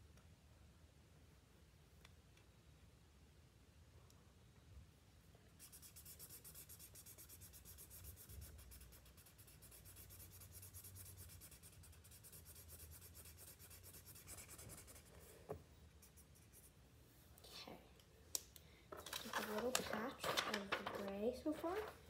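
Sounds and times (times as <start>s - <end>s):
marker scribbling on paper: 5.6s - 15.3s, 15.9s - 16.8s.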